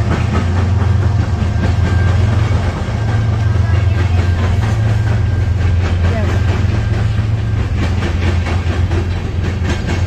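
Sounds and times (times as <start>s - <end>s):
diesel locomotive rumble: 0.0s - 10.0s
train wheels on rails: 0.0s - 10.0s.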